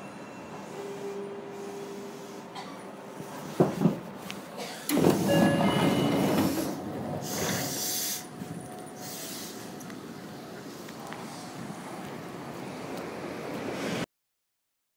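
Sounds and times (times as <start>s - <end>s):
electric train rushing: 4.8s - 10.6s
high air hiss: 6.5s - 8.4s, 9.0s - 9.8s.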